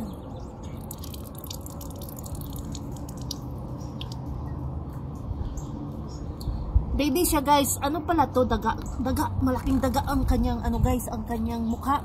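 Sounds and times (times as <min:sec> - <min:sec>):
rainwater drops tapping: 0:00.8 - 0:04.3.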